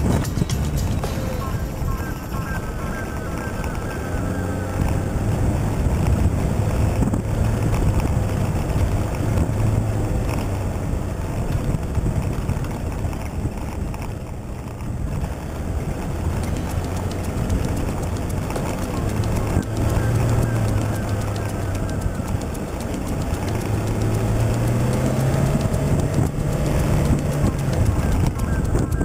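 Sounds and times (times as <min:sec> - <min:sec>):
vehicle engine rumbling off-road: 0:00.0 - 0:29.0.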